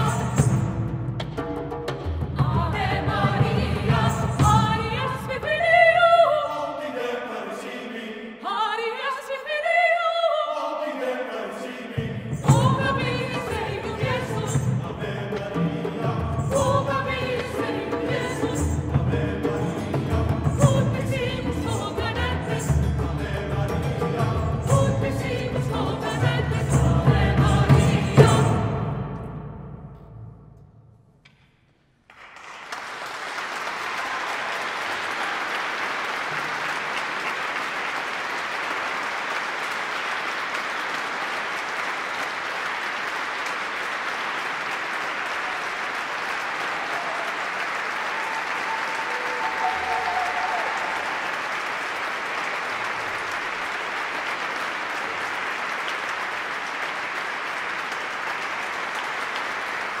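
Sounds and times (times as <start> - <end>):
music: 0.0 - 6.7, 11.9 - 31.5
audience applause: 32.1 - 60.0.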